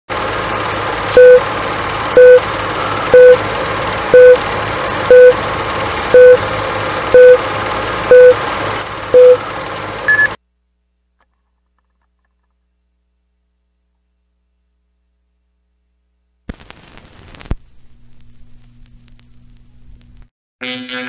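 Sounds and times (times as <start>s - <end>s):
countdown beeps: 1.2s - 1.4s, 2.2s - 2.4s, 3.1s - 3.4s, 4.2s - 4.4s, 5.1s - 5.4s, 6.1s - 6.4s, 7.1s - 7.4s, 8.1s - 8.4s, 9.2s - 9.4s, 10.1s - 10.4s
quick high-pitched beeps: 2.2s - 2.4s, 3.1s - 3.4s, 4.1s - 4.4s, 5.1s - 5.4s, 6.1s - 6.4s, 7.1s - 7.4s, 8.1s - 8.4s, 9.2s - 9.4s, 10.1s - 10.4s.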